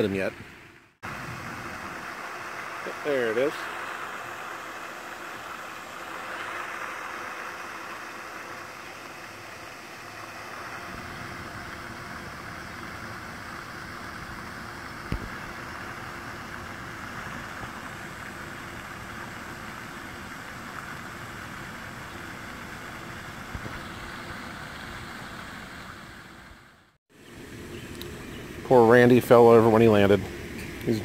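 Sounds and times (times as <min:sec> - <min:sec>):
low rushing noise: 0:00.0 - 0:19.6
drone propellers buzzing: 0:01.0 - 0:25.6.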